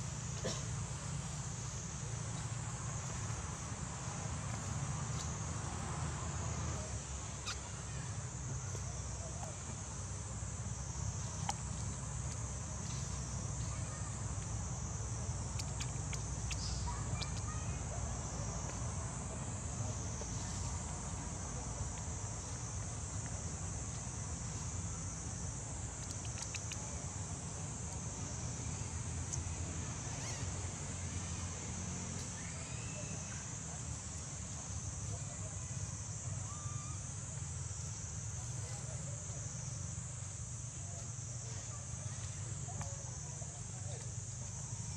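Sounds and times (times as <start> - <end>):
insects droning: 0.0 - 44.9
faint clicks: 26.0 - 26.8.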